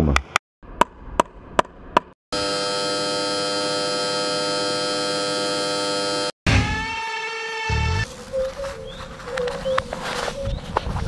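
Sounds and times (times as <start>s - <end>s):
electronic buzzing drone: 2.3s - 6.8s.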